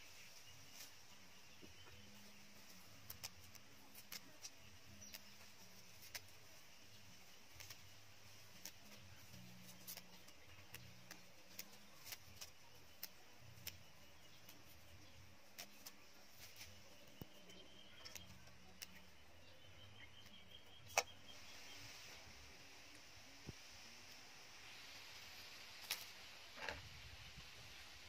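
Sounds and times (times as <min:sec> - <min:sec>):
leaves plucked clicks and snaps: 0:02.6 - 0:19.2, 0:25.7 - 0:26.8.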